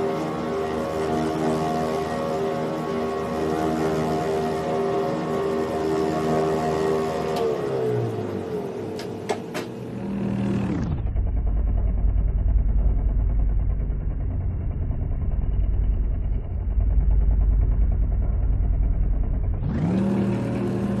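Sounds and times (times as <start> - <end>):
lathe knurling metal: 0.0 - 7.6.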